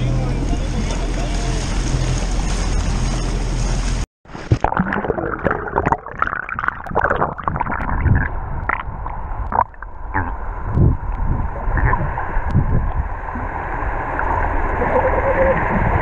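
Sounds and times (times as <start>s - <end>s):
wind: 0.0s - 4.6s, 6.5s - 16.0s
surface water noise: 0.4s - 10.3s
underwater gurgling and bubbles: 1.0s - 16.0s.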